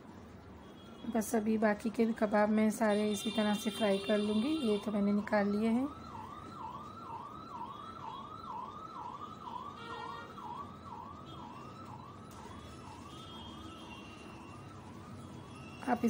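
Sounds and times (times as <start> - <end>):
siren yelping: 4.4 - 15.8.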